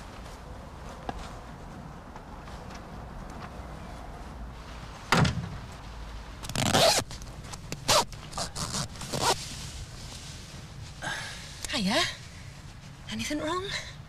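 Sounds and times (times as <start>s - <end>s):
zip being pulled: 6.4s - 7.1s, 7.8s - 9.4s.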